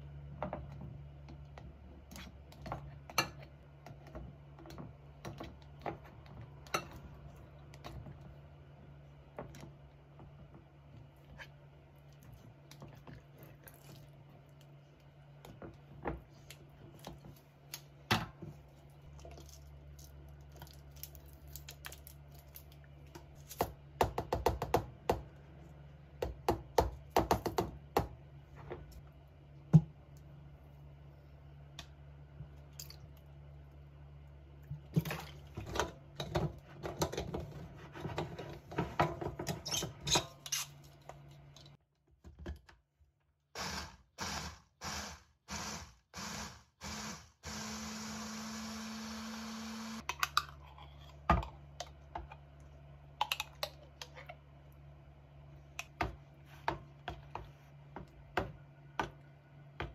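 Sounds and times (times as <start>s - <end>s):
small blender pulsing: 43.6s - 50.1s.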